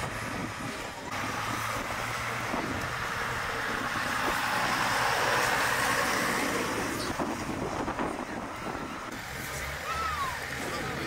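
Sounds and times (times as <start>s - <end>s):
tractor diesel engine passing: 0.0s - 11.0s.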